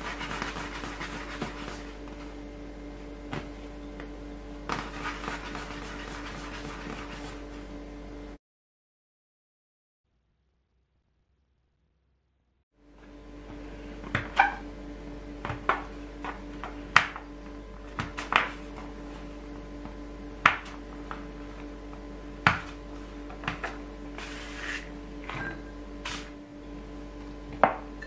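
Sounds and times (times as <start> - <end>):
scraper tapping wooden board: 0.0 - 1.9
scraper scraping board: 0.0 - 2.3, 4.7 - 7.5, 23.4 - 24.9
steady low hum: 0.0 - 8.4, 12.8 - 28.0.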